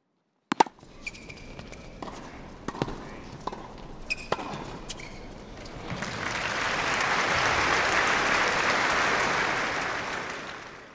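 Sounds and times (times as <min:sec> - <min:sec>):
applause: 0:05.9 - 0:10.9.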